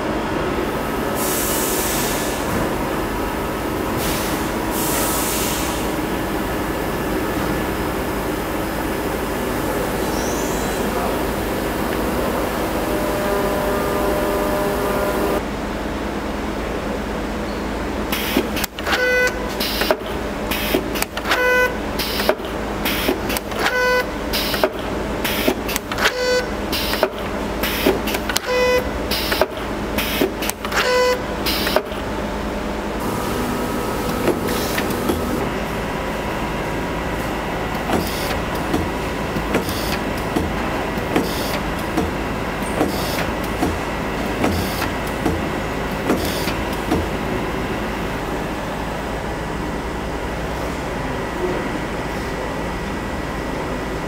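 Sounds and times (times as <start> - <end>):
labelling machine humming and clicking: 0.0 - 54.0
pneumatic cylinders clacking and hissing: 1.0 - 2.9, 3.8 - 6.2, 9.5 - 15.4, 17.5 - 32.1, 32.9 - 35.6, 37.0 - 47.4
short pitched tone: 12.4 - 15.4.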